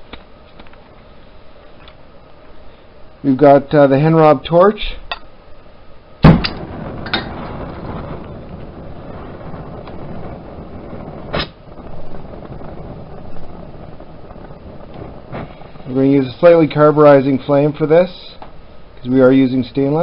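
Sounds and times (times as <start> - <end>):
torch flame burning: 0.0 - 20.0
torch lighting pop: 6.2 - 8.7, 11.2 - 11.6.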